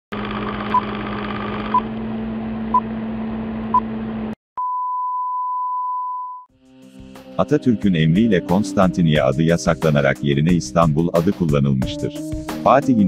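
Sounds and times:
long steady beep: 4.6s - 6.5s.

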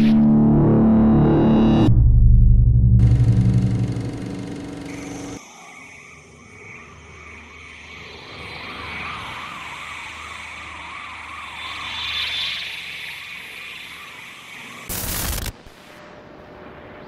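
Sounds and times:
low hum: 0.0s - 5.4s
warbling electronic tone: 0.0s - 5.4s.

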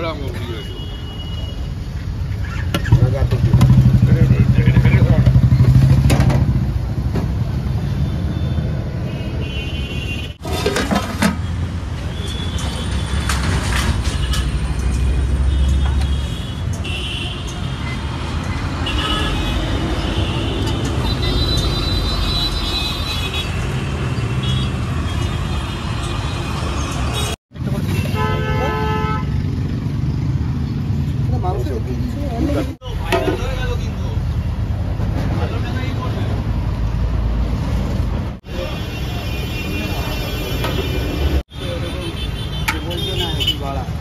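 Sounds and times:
road traffic: 0.0s - 44.0s
vehicle engines running: 2.1s - 7.9s.

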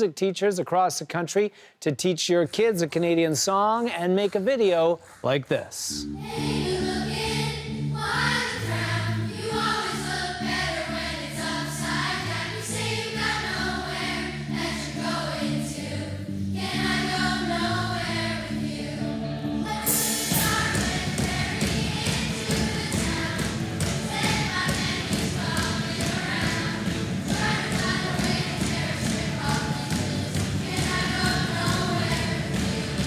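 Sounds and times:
children singing in unison: 6.2s - 33.0s
band playing indie rock: 19.7s - 28.9s
cymbal crash: 19.8s - 21.2s.

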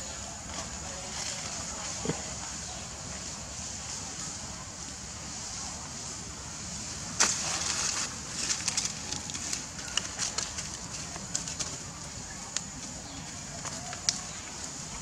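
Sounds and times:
dry leaves crackling: 0.0s - 15.0s
steady high hiss: 0.0s - 15.0s
scuff in leaves: 7.1s - 15.0s.

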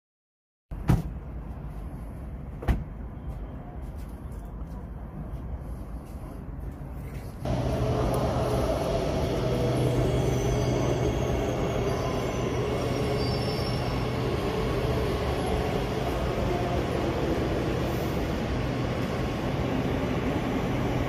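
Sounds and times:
metro station rumble and hum: 0.7s - 21.0s
train running on tracks: 0.9s - 21.0s
faint high squeals: 9.2s - 17.0s.

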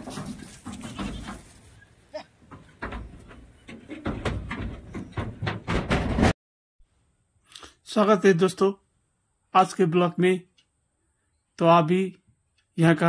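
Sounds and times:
rustling and knocks: 0.0s - 6.4s.

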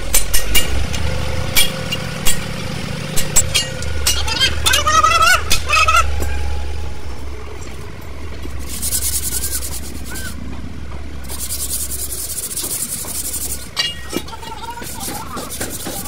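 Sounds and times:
low engine rumble: 0.0s - 16.0s
metal scraping brake shoe: 7.6s - 10.5s, 11.1s - 16.0s.

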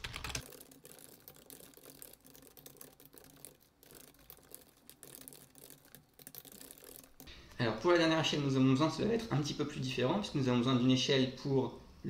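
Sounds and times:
typing on a keyboard: 0.0s - 7.2s.

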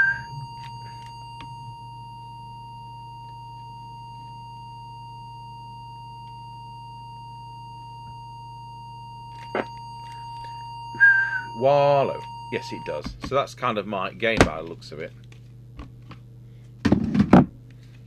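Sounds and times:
steady test tone: 0.0s - 14.4s
low steady hum: 0.0s - 18.0s.

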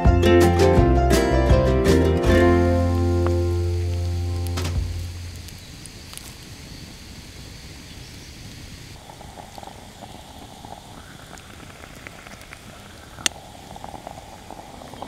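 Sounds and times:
campfire crackling and popping: 0.0s - 15.0s
moka pot bubbling and gurgling: 9.0s - 15.0s.

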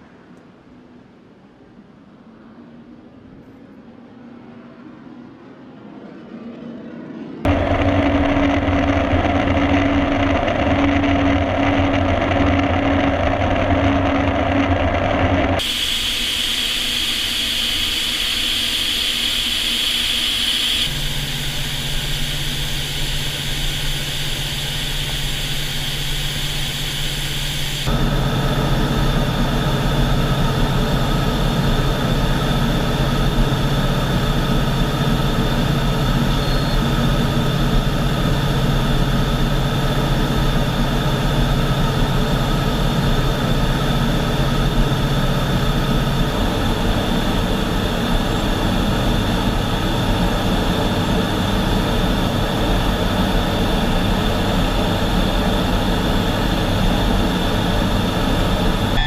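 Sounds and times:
jet engine and airflow rushing: 0.0s - 59.0s
low hum: 0.0s - 59.0s
steady high tones: 7.5s - 37.6s.

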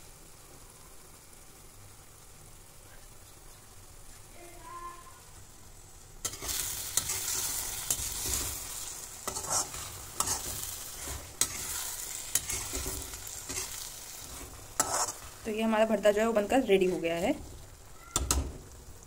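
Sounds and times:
food sizzling in oil: 0.0s - 19.0s
metal spatula scraping a wok: 6.2s - 15.5s, 16.6s - 17.7s.

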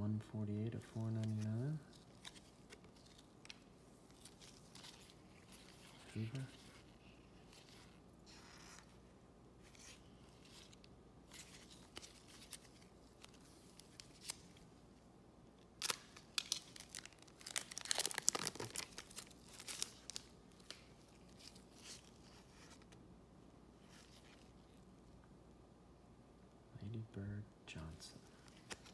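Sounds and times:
foil pack tearing and crinkling: 15.8s - 22.0s.

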